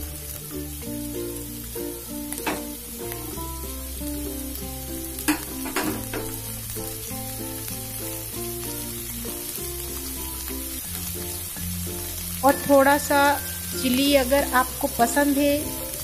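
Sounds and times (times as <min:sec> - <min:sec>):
background music: 0:00.0 - 0:16.0
vegetables sizzling in hot oil: 0:00.0 - 0:16.0
wooden spatula knocking on pan: 0:05.3 - 0:06.4.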